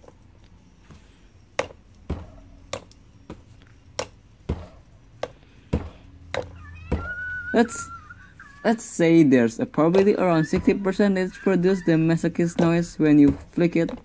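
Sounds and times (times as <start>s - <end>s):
fingers tapping plastic figurine: 1.6s - 1.8s, 4.0s - 4.2s, 5.2s - 7.5s.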